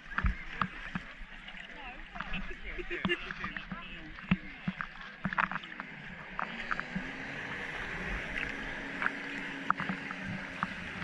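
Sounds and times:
water rushing: 0.0s - 11.0s
water splashes: 0.0s - 11.0s
wind: 0.0s - 11.0s.

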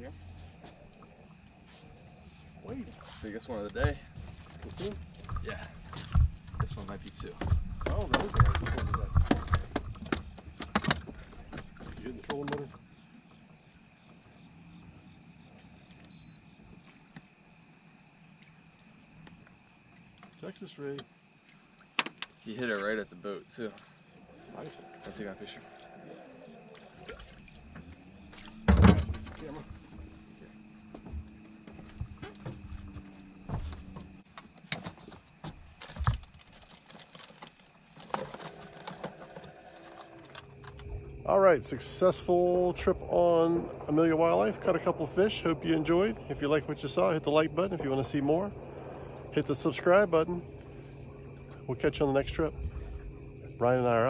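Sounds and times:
insects buzzing: 0.0s - 54.0s
knocks and thumps in boat: 3.6s - 12.8s, 27.0s - 39.6s.

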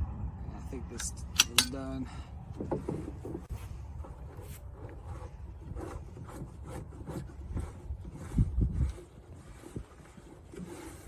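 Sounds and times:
plastic rubbing and scraping: 2.5s - 11.0s.

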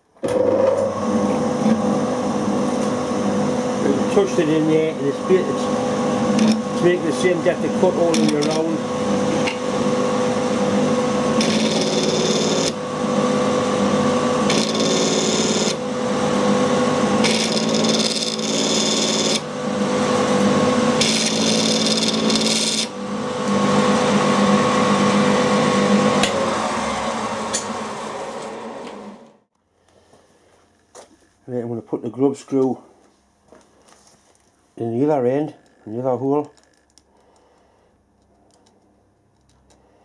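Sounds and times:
mill spindle motor humming: 0.3s - 29.5s.

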